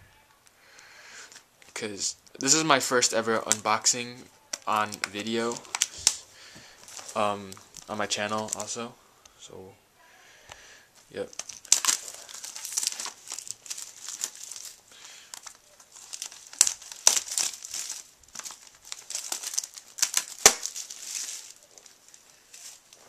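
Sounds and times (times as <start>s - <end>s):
plastic shrink-wrap crinkling: 2.4s - 8.9s, 11.0s - 23.0s
plastic snapping: 4.5s - 6.2s, 11.3s - 21.0s.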